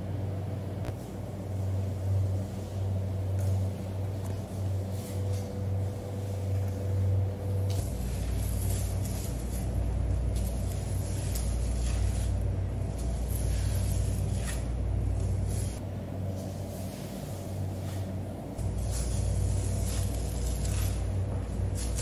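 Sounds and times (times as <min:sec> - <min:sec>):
machinery rumble and hum: 0:00.0 - 0:22.0
knife scraping fish skin: 0:10.4 - 0:12.4, 0:13.0 - 0:14.7.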